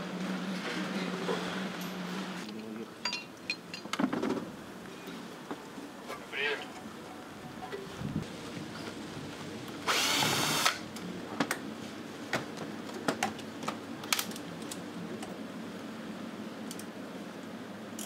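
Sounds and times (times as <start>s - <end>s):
tools clinking on steel workbench: 2.5s - 4.0s
cordless drill spinning: 9.9s - 10.8s.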